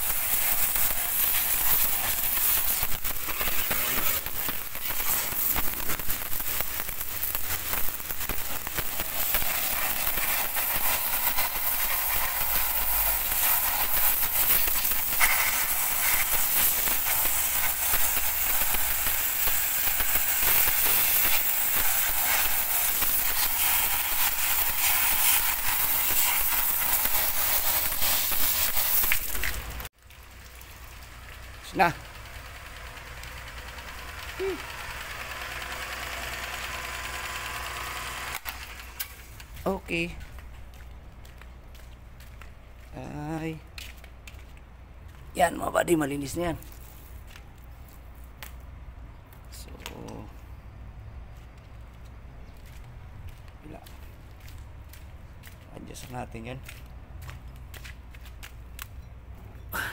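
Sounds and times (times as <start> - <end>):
pressure washer spraying: 0.0 - 39.4.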